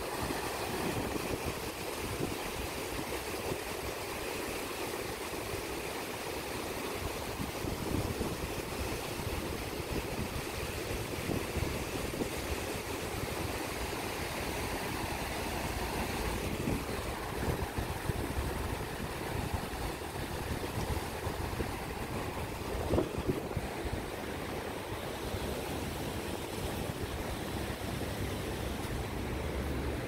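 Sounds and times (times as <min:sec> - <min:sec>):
wind rumbling on microphone: 0:00.0 - 0:04.1, 0:07.0 - 0:30.0
small waves washing on rocks: 0:00.0 - 0:30.0.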